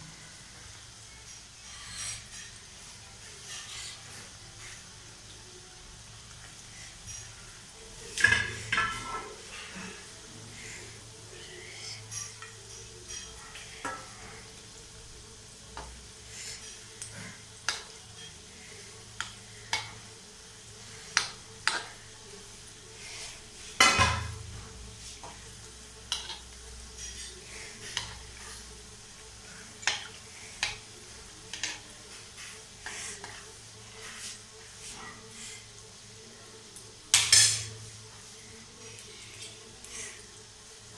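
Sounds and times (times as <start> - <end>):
oil sizzling: 0.0 - 40.9
spoon clinking and scraping pan: 8.1 - 10.0, 23.2 - 24.4, 26.1 - 28.6, 29.6 - 30.9, 31.5 - 35.2, 37.1 - 37.8.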